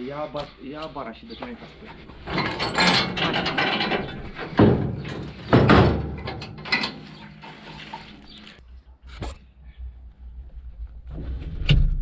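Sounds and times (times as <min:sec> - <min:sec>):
heavy metal thuds and clanks: 0:01.7 - 0:08.2.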